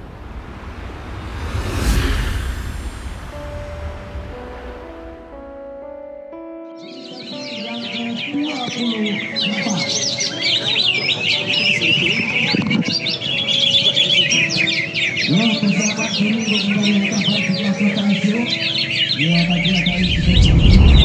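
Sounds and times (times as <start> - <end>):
low steady tone: 0.0 - 6.2
caged songbirds chirping and trilling: 6.7 - 21.0.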